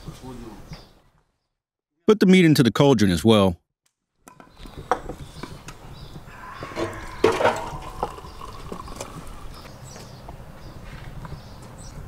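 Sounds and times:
jug and glass clinking: 6.8 - 9.6
liquid pouring into glass: 7.5 - 9.6.

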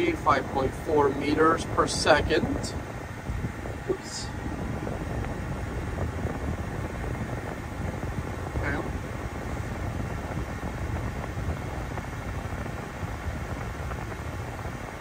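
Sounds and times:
climate-control blower rushing air: 0.0 - 15.0.

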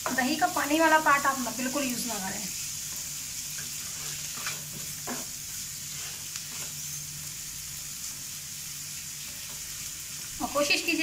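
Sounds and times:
masala sizzling in a pan: 0.0 - 11.0
spatula scraping a pan: 2.9 - 7.1.

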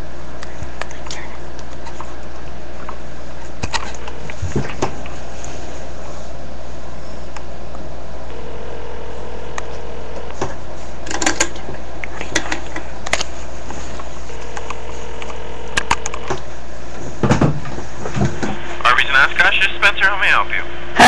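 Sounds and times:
steady hum: 0.0 - 21.0
telephone ringback tone: 8.3 - 10.3, 14.3 - 16.3
scattered clicks: 14.4 - 16.4.

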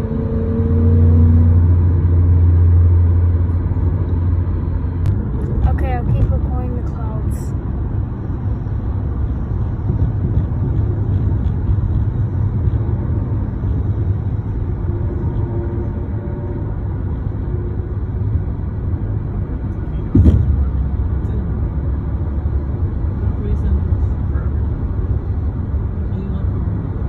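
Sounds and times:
car road and engine rumble: 0.0 - 27.0
low thump: 20.1 - 20.8.

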